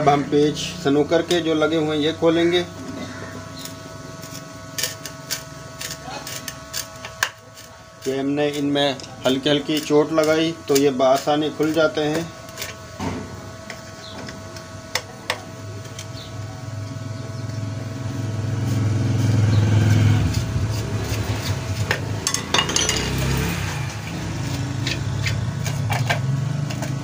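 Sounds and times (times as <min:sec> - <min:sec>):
metal tools clinking on metal: 0:22.2 - 0:23.2.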